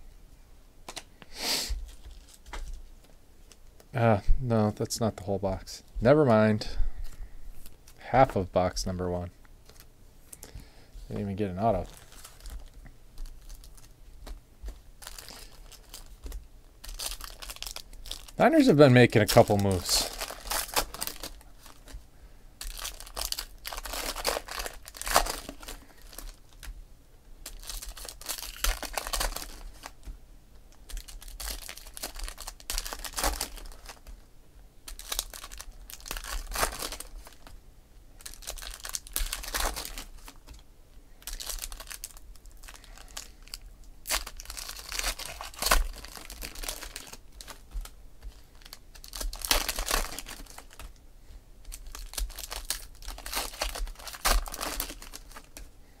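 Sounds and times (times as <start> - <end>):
foil wrappers crinkling and tearing: 1.8 - 2.9, 11.1 - 22.0, 22.6 - 26.8, 27.4 - 30.1, 30.7 - 34.2, 34.8 - 37.6, 38.2 - 40.6, 41.2 - 51.0, 51.6 - 55.7.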